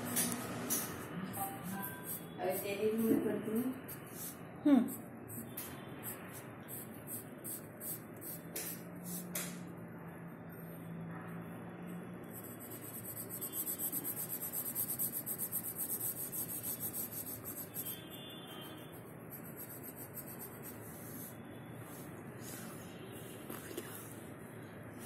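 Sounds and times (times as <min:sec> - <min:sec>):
pencil scratching on paper: 0:00.3 - 0:09.4, 0:12.3 - 0:21.4.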